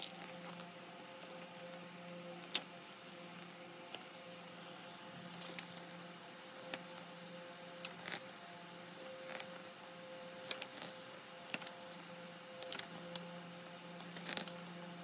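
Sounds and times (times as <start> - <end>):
book pages turning: 0.0 - 1.8, 5.3 - 7.1, 7.7 - 8.3, 9.0 - 13.3, 14.0 - 14.7
faint steady hum: 0.0 - 15.0.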